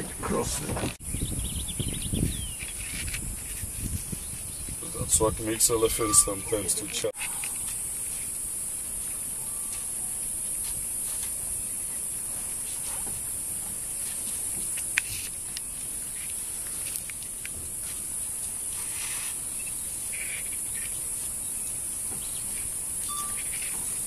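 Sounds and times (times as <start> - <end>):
high-pitched insect drone: 5.8 - 12.2, 18.6 - 24.0.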